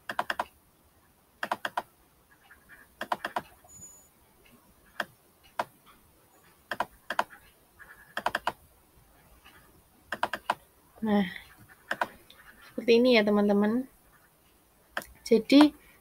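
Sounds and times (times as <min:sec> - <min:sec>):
mouse and keyboard clicks: 0:00.1 - 0:00.6, 0:01.4 - 0:01.9, 0:03.0 - 0:03.6, 0:06.7 - 0:07.4, 0:08.1 - 0:08.6, 0:09.4 - 0:10.6, 0:11.9 - 0:12.4, 0:15.0 - 0:15.8.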